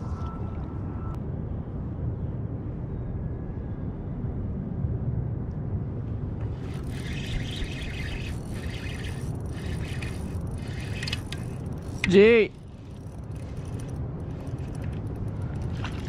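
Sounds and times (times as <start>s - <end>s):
low wind rumble on microphone: 0.0s - 16.0s
spinning reel whirring: 6.6s - 16.0s.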